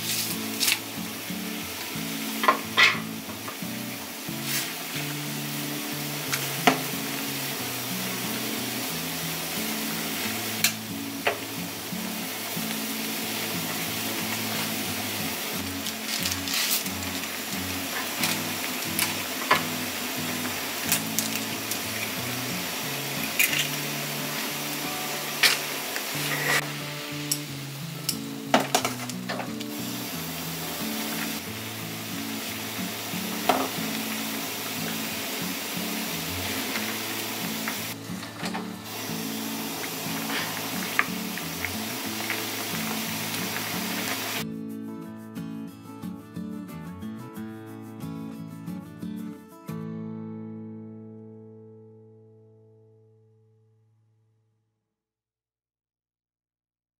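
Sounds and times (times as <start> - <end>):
broth boiling: 0.0 - 44.4
soft background music: 0.0 - 49.6.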